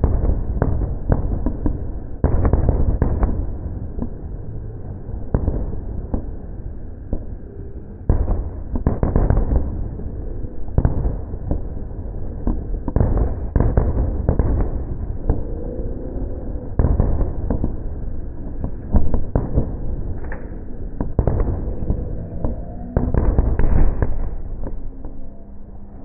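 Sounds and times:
fireworks bursting: 0:00.0 - 0:04.3, 0:08.1 - 0:15.5, 0:16.6 - 0:24.8
low rumble: 0:00.0 - 0:26.0.

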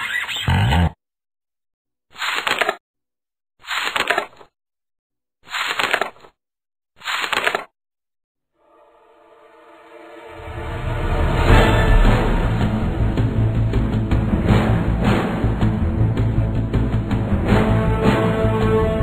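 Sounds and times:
music: 0:08.6 - 0:19.0.

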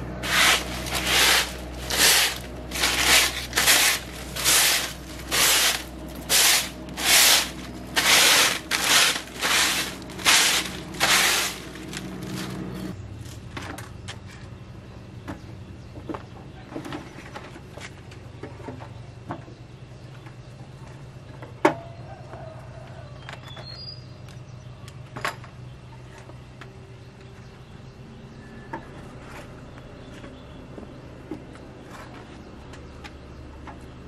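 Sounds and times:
broom sweeping concrete floor: 0:00.0 - 0:13.0
low steady hum: 0:00.0 - 0:23.0.

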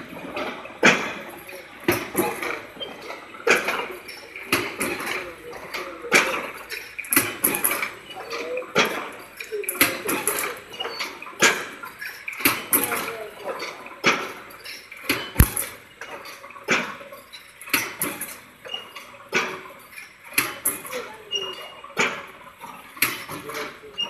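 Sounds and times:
welding press clanking: 0:15.4 - 0:15.8.

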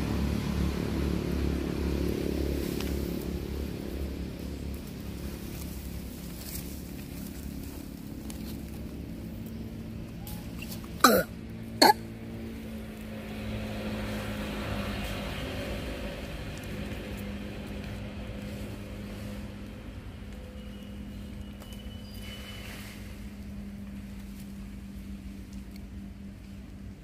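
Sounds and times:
steady low hum: 0:15.0 - 0:27.0.

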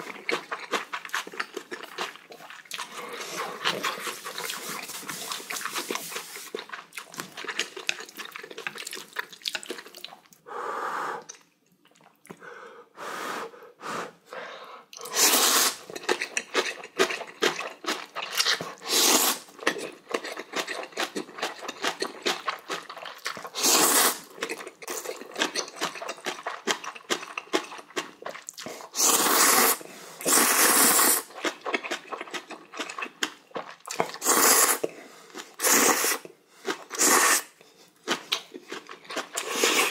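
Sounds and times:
wet mouth chewing noises: 0:00.0 - 0:10.4, 0:14.9 - 0:39.9
man slurping noodles: 0:15.0 - 0:15.9, 0:18.8 - 0:19.5, 0:23.5 - 0:24.3, 0:28.8 - 0:31.3, 0:34.1 - 0:34.9, 0:35.6 - 0:36.2, 0:36.9 - 0:37.6, 0:39.4 - 0:39.9.

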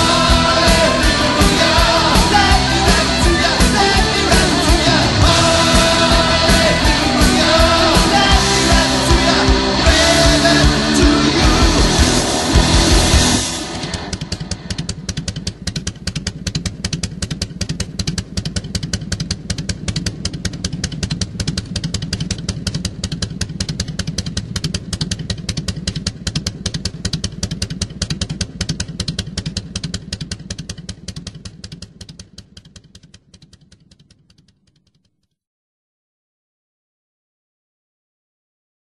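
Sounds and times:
motorcycle engine pulsing: 0:00.0 - 0:35.3.

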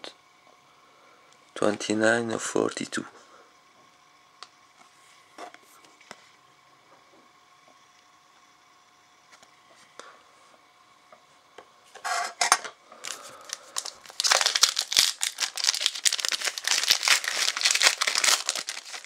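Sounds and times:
foil wrapper crinkling: 0:13.0 - 0:19.0
foil wrapper ripping: 0:13.0 - 0:19.0.

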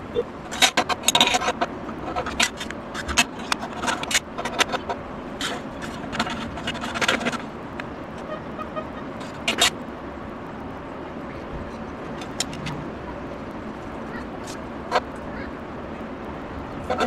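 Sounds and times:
steady background noise: 0:00.0 - 0:17.0
metal clicks and scrapes: 0:00.5 - 0:08.3, 0:09.2 - 0:09.8, 0:11.7 - 0:12.8.

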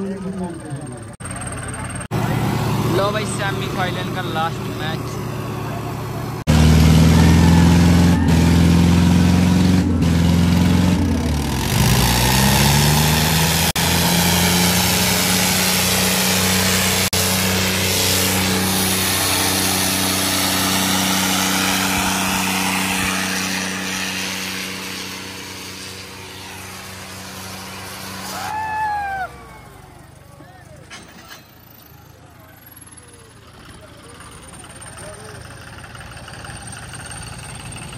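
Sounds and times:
diesel tractor engines under load: 0:00.0 - 0:37.9
broad rushing noise: 0:02.1 - 0:29.5.

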